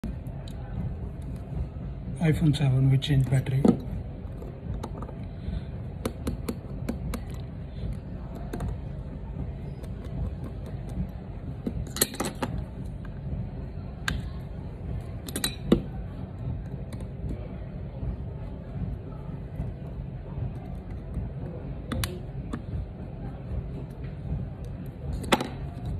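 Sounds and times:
steady low hum: 0:00.0 - 0:25.9.

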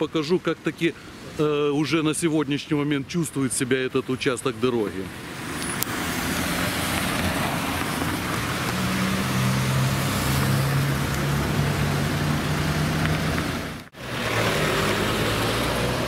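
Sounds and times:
car tyres hissing on wet road: 0:05.3 - 0:16.0.

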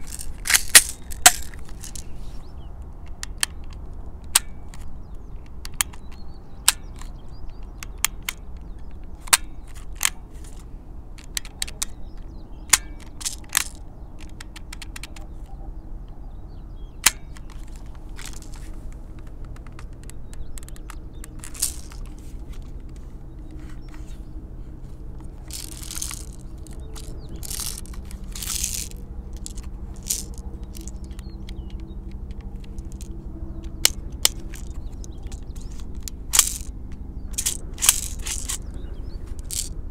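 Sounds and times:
toy pistol mechanical clicks: 0:00.0 - 0:02.2, 0:03.0 - 0:10.6, 0:11.2 - 0:15.4, 0:17.0 - 0:22.2, 0:25.2 - 0:39.8
scraping sounds: 0:00.0 - 0:02.5, 0:20.7 - 0:31.2, 0:37.3 - 0:39.8.

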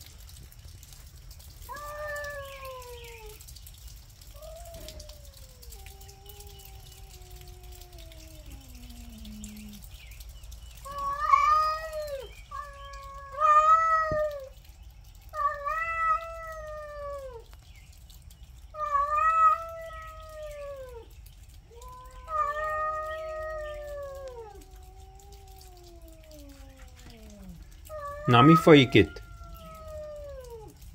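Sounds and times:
cats yowling: 0:00.9 - 0:17.6, 0:18.6 - 0:30.9
low drawn-out cat moan: 0:04.4 - 0:09.9, 0:21.7 - 0:30.9.

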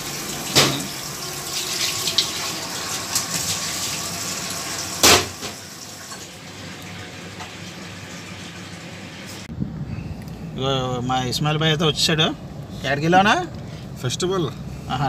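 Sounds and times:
sharp knock: 0:05.0 - 0:05.5.

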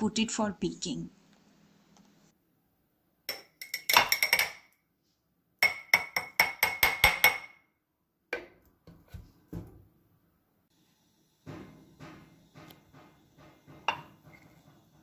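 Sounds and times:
metal spoon tapping glass jar: 0:03.3 - 0:04.6, 0:05.6 - 0:07.6.

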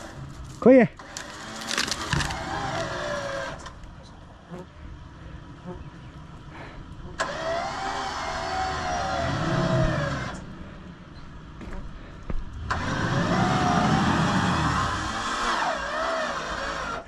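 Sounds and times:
electric winch motor whine: 0:01.0 - 0:03.8, 0:07.1 - 0:11.0, 0:12.6 - 0:17.0.

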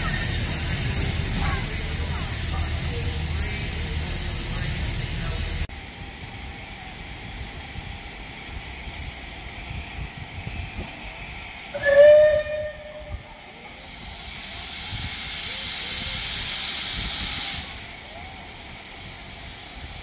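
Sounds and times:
steam locomotive hissing: 0:00.0 - 0:20.0
steam whistle blast: 0:11.7 - 0:13.3.

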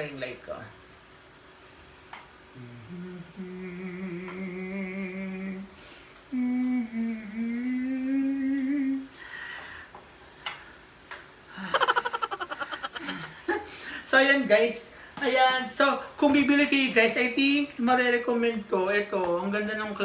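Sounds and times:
man humming: 0:02.5 - 0:09.1.

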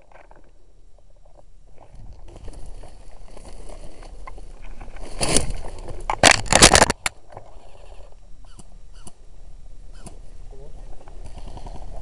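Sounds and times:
footsteps through dry undergrowth: 0:01.8 - 0:06.1
twigs crackling and snapping: 0:02.8 - 0:07.2
camera jostling: 0:05.2 - 0:07.1.

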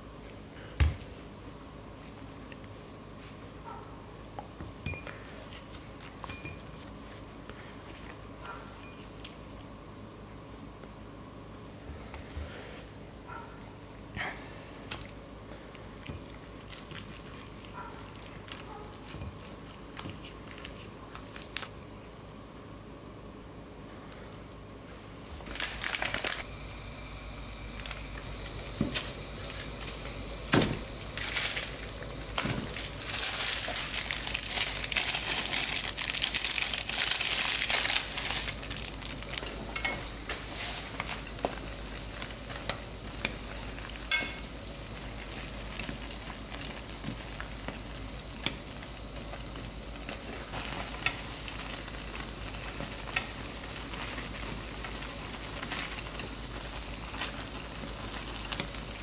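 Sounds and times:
water boiling in a pan: 0:25.4 - 0:59.0.

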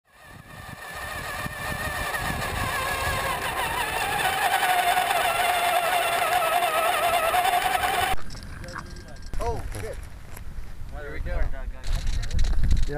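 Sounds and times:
motor whining: 0:00.1 - 0:08.2.

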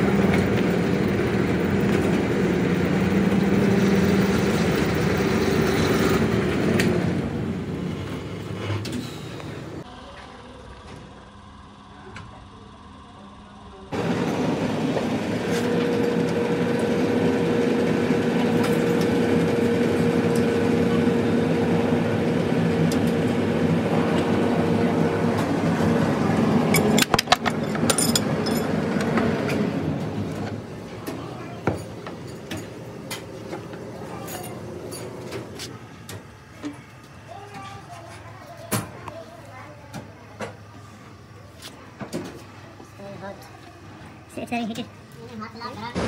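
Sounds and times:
workshop noise with clicks: 0:05.8 - 0:07.2, 0:07.8 - 0:11.1, 0:25.2 - 0:40.9, 0:41.5 - 0:44.2
hydraulic pump humming: 0:13.9 - 0:39.2.

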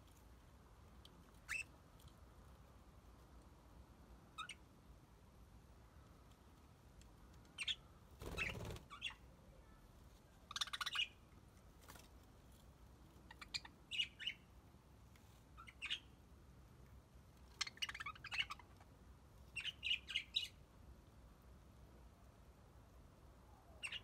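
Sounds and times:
budgerigars chirping: 0:01.5 - 0:01.7, 0:04.4 - 0:04.6, 0:10.5 - 0:11.2, 0:13.3 - 0:14.4, 0:17.6 - 0:18.8.

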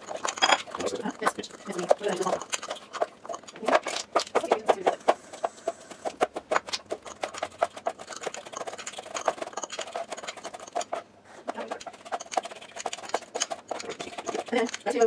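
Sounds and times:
knife chopping on plastic board: 0:06.0 - 0:09.5.

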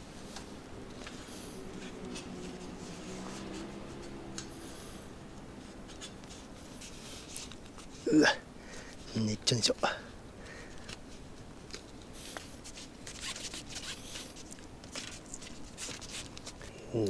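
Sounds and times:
tyre scratching and rubbing on rim: 0:01.8 - 0:04.3, 0:12.6 - 0:14.4.

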